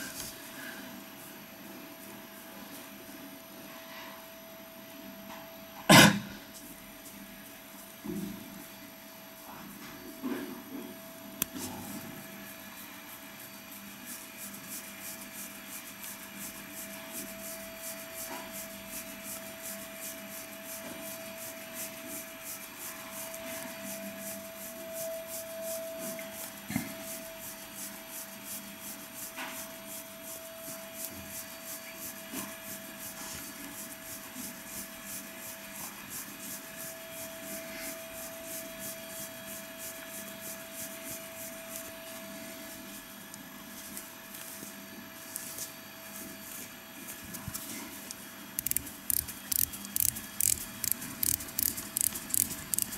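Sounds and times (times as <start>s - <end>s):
gloves rubbing watch strap: 12.8s - 25.6s, 48.6s - 52.9s.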